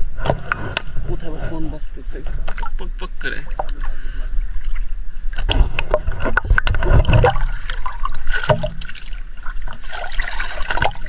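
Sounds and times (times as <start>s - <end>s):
water sloshing and splashing: 2.1s - 11.0s.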